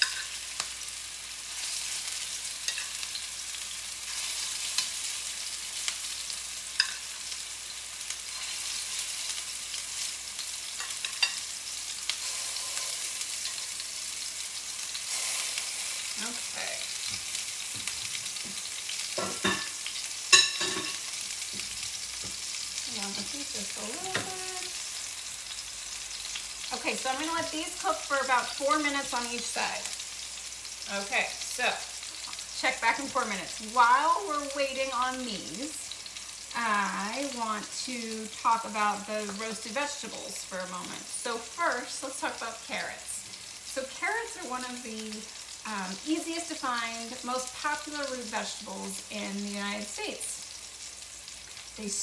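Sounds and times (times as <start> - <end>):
metal tongs clinking on pan: 0.0 - 0.7, 2.6 - 3.2, 6.8 - 7.2, 10.7 - 11.5, 19.2 - 21.0
meatballs sizzling in a skillet: 0.0 - 52.0.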